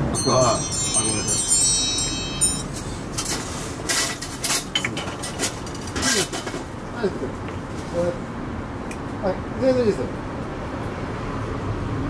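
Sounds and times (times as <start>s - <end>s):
metal wind chime ringing: 0.0s - 3.3s.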